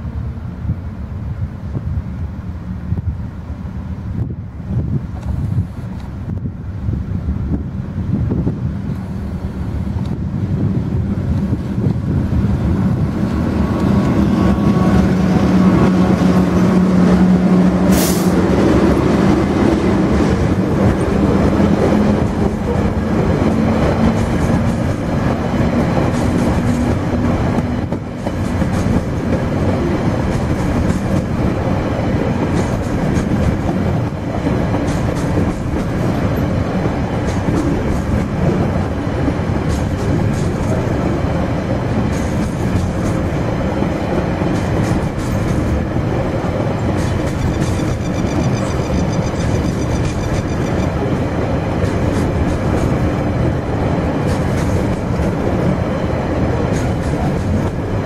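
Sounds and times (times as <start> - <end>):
locomotive engine hum: 0.0 - 58.0
train wheels rumbling on rails: 0.0 - 58.0.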